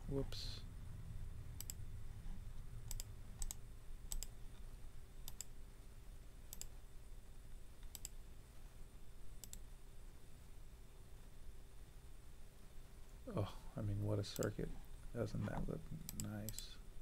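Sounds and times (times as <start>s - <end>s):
faint low hum: 0.0s - 17.0s
computer mouse clicking: 1.6s - 1.8s, 2.8s - 4.4s, 5.2s - 5.6s, 6.5s - 6.8s, 7.8s - 8.2s, 9.4s - 9.7s, 16.0s - 16.7s.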